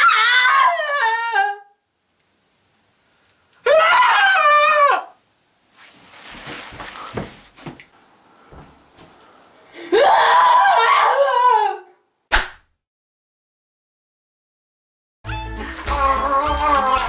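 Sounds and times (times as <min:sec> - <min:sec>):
boys screaming: 0:00.0 - 0:01.7, 0:03.6 - 0:05.2, 0:09.9 - 0:11.9, 0:15.8 - 0:17.0
rustling with soft thumps: 0:05.7 - 0:07.9, 0:08.5 - 0:09.3.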